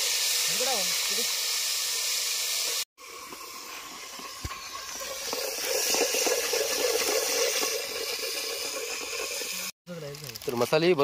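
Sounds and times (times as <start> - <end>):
liquid hissing and bubbling in pot: 0.0 - 10.4
ladle stirring pot: 3.0 - 9.7.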